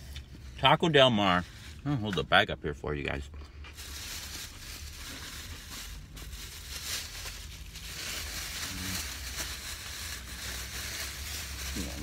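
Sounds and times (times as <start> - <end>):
plastic bag rustling: 3.7 - 12.0.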